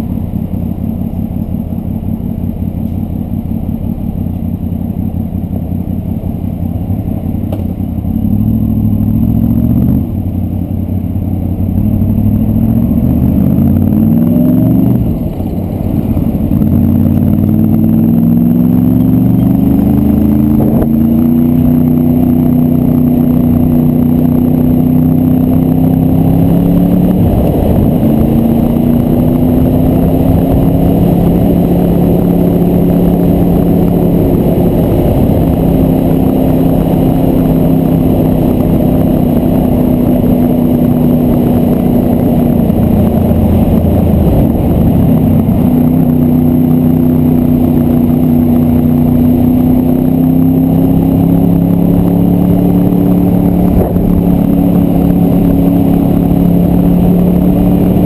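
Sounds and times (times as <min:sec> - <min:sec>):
motorcycle engine cruising: 0:00.0 - 0:58.0
wind rush: 0:25.9 - 0:49.6, 0:51.1 - 0:58.0.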